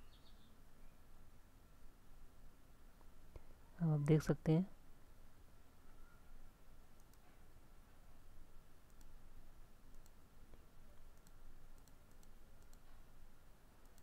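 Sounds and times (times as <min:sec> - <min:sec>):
low background hiss: 0:00.0 - 0:14.0
computer mouse clicks: 0:07.0 - 0:07.4, 0:08.8 - 0:09.2, 0:09.9 - 0:13.0.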